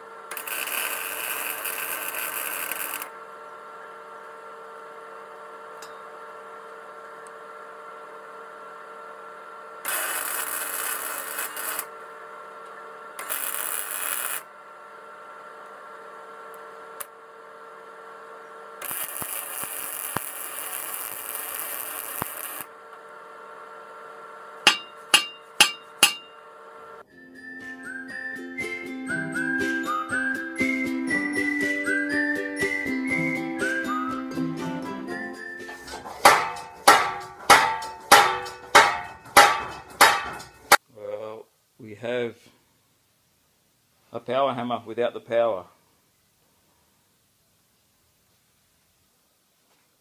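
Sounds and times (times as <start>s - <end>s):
arc welding crackling hiss: 0.0s - 3.2s, 9.8s - 12.0s, 13.2s - 14.5s, 18.8s - 22.8s
steady hum: 0.0s - 27.1s, 35.6s - 40.8s
sharp metallic strikes: 24.6s - 26.4s, 36.2s - 40.8s.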